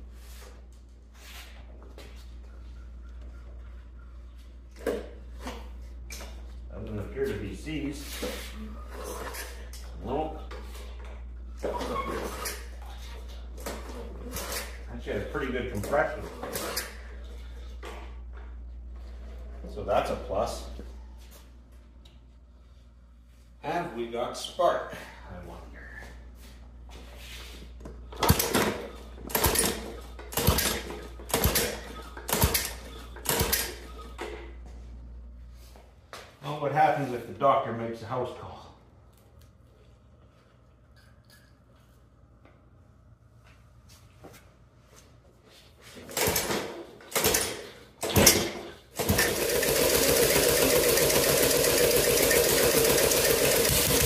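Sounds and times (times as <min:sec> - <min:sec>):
engine cranking whir: 0:47.1 - 0:54.0
mower recoil starter pulls: 0:49.0 - 0:54.0.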